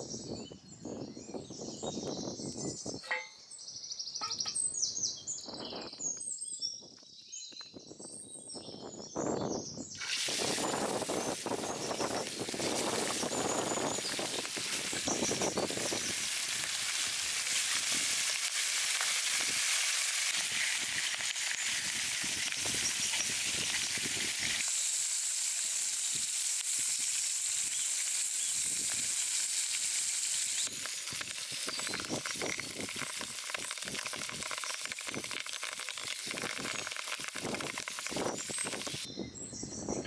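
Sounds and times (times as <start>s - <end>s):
fish sizzling in hot oil: 10.0s - 39.1s.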